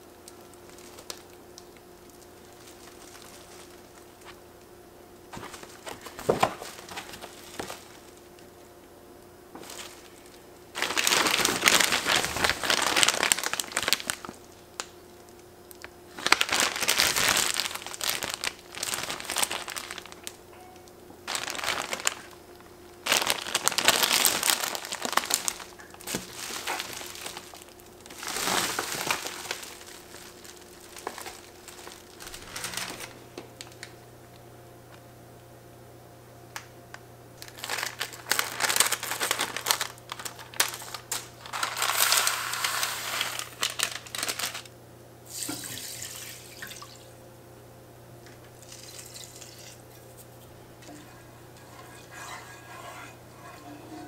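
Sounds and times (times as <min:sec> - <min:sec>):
plastic packaging crinkling: 0:00.0 - 0:04.6, 0:05.3 - 0:08.6, 0:09.5 - 0:34.4, 0:37.4 - 0:47.0, 0:48.4 - 0:53.6
scissors cutting plastic bag: 0:10.8 - 0:14.9, 0:16.1 - 0:20.4, 0:21.3 - 0:22.4, 0:23.0 - 0:33.9, 0:37.4 - 0:44.7.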